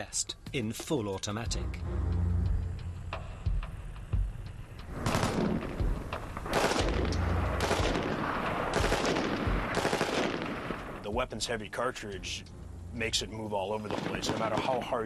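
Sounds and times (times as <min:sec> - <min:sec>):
rifle firing bursts: 0:05.0 - 0:05.7, 0:06.5 - 0:11.0, 0:13.9 - 0:14.8.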